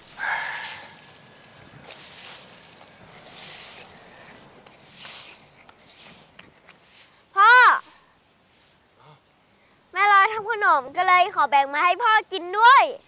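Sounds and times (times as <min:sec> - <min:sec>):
broom sweeping dry leaves: 0:00.0 - 0:08.9.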